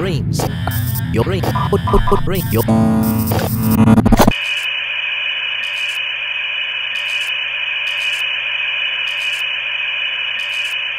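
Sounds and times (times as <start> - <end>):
electronic static hiss: 0.4 - 4.6.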